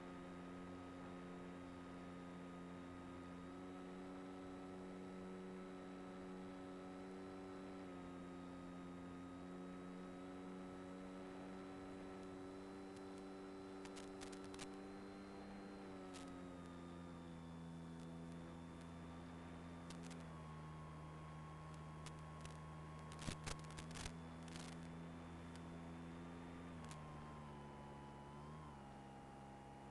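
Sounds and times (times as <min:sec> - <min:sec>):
electric motor and propeller hum: 0:11.4 - 0:20.7, 0:21.7 - 0:29.8.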